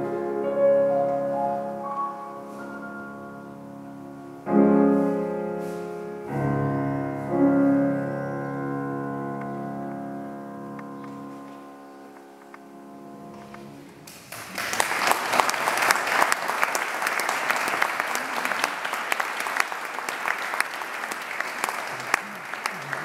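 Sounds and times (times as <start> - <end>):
piano chord ringing: 0.0 - 14.0
audience applause: 14.1 - 23.0.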